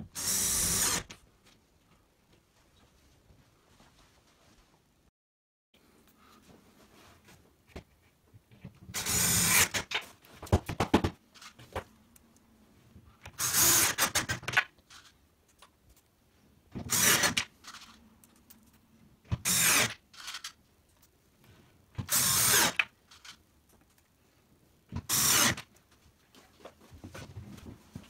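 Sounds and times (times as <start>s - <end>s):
cordless drill whirring: 0.2s - 1.2s, 9.0s - 9.8s, 13.3s - 14.3s, 16.8s - 17.5s, 19.4s - 20.4s, 22.0s - 23.3s, 25.0s - 25.6s.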